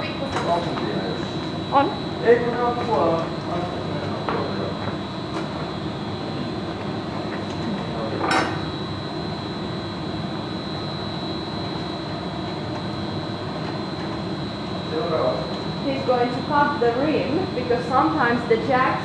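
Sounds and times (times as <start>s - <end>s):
constant high tone: 0.0s - 6.8s
gas furnace rushing: 0.0s - 19.0s.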